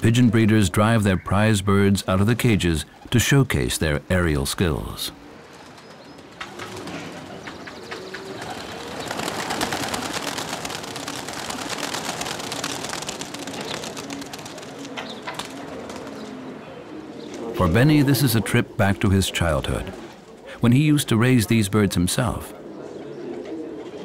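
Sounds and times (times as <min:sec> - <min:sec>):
pigeons cooing: 0:04.8 - 0:21.0, 0:21.8 - 0:24.0
pigeon wings flapping: 0:05.5 - 0:16.5.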